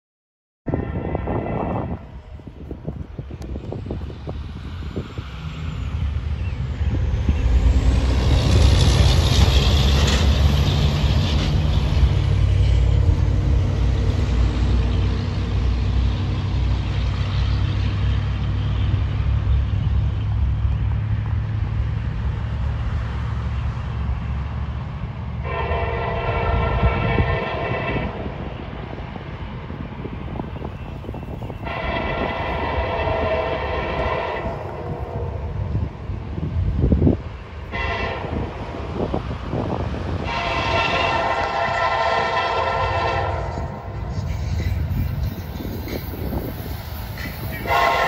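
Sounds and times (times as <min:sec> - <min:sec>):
locomotive horn chord: 0:00.7 - 0:02.2, 0:25.4 - 0:28.3, 0:31.6 - 0:35.8, 0:37.6 - 0:38.6, 0:40.1 - 0:44.2, 0:47.6 - 0:48.0.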